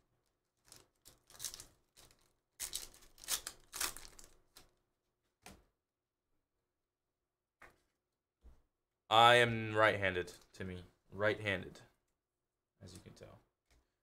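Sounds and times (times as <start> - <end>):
foil wrapper tearing and crinkling: 0.6 - 4.7.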